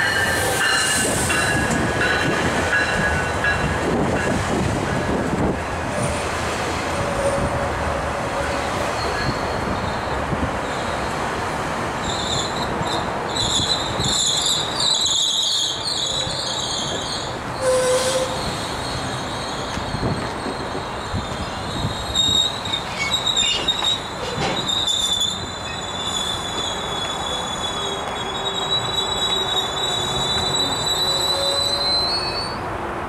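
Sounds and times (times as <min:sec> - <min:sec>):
train wheels squealing: 0:00.0 - 0:03.7, 0:08.8 - 0:11.2, 0:12.0 - 0:32.6
wheels rumbling on rails: 0:15.8 - 0:32.4.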